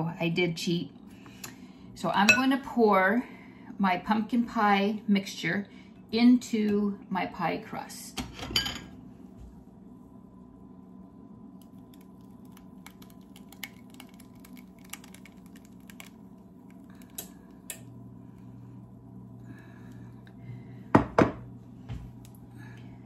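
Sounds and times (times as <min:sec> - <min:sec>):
filling poured from glass bowl: 0:11.8 - 0:17.2
glass bowl knocking on countertop: 0:21.0 - 0:21.4.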